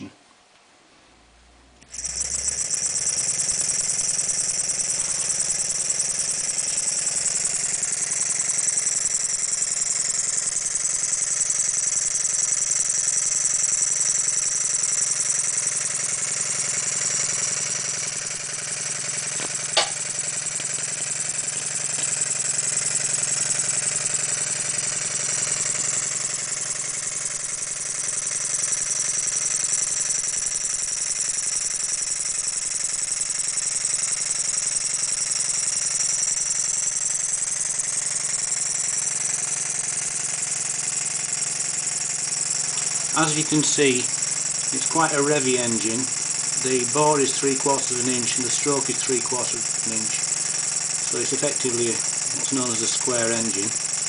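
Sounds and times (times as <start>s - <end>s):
model steam engine whirring: 1.8s - 54.0s
sharp click: 19.3s - 20.0s, 21.6s - 22.2s, 42.6s - 43.5s.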